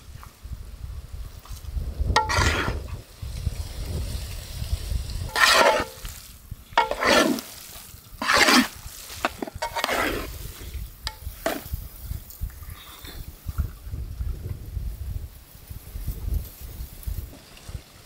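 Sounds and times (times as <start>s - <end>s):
scraping in cooking pot: 2.2s - 2.8s, 5.3s - 6.2s, 6.8s - 11.8s.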